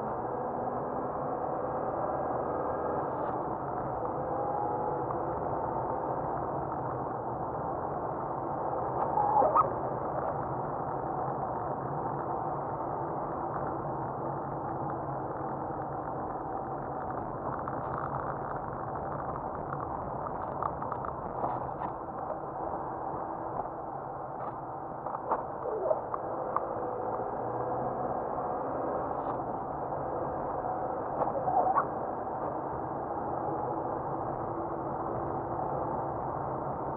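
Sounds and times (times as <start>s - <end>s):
muffled car road and engine noise: 0.0s - 36.9s.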